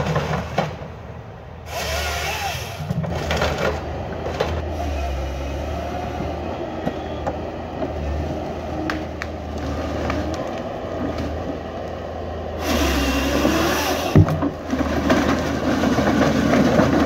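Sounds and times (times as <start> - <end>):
diesel engine and hydraulics: 0.0 - 17.0
chainsaw cutting through stem: 1.7 - 2.9, 12.6 - 14.2
wood cracking: 12.6 - 17.0.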